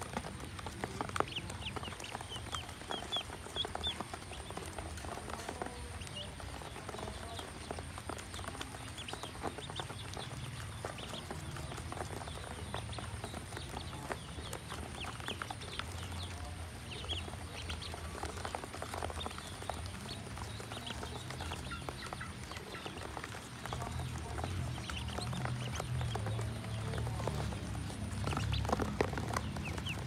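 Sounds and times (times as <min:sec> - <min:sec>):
ducklings peeping: 0:00.0 - 0:30.0.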